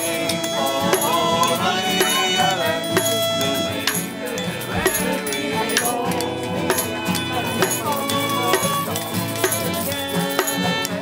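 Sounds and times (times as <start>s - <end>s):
strummed guitars: 0.0s - 11.0s.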